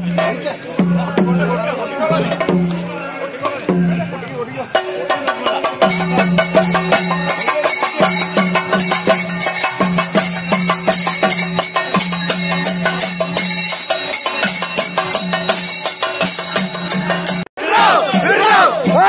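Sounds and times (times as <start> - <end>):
drum strokes: 0.0 - 19.0
jingling metal cymbals: 4.7 - 17.5.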